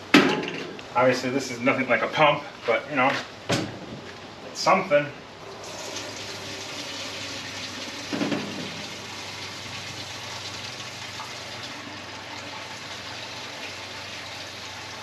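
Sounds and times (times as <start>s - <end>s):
fuel pouring into tank: 5.4s - 15.0s.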